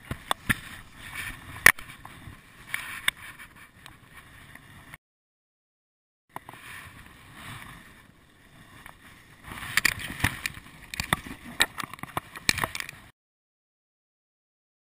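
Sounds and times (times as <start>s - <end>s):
handling rustles and clicks: 8.8s - 13.1s.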